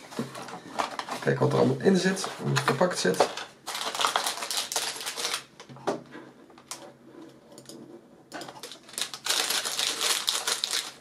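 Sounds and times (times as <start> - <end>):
plastic bags crinkling: 2.8 - 5.5, 8.4 - 11.0.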